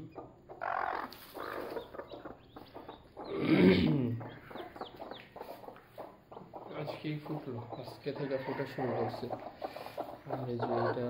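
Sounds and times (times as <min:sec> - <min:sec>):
chicks peeping: 0:00.0 - 0:11.0
hen clucking: 0:00.0 - 0:11.0.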